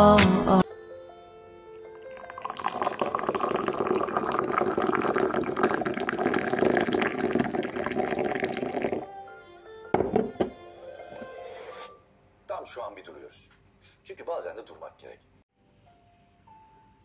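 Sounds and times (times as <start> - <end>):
tea pouring into a glass: 1.9 - 9.2.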